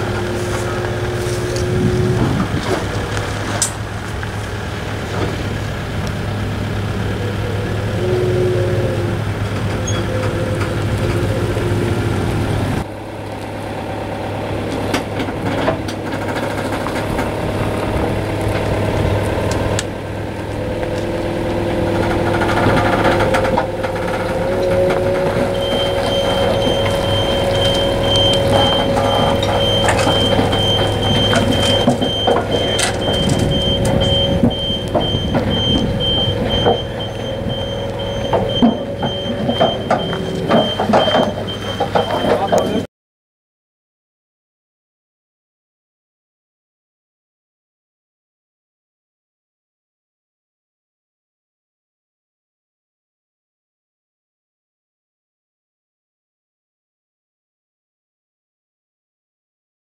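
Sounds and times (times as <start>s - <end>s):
forklift engine running: 0.0s - 42.9s
hydraulics lowering: 0.0s - 42.9s.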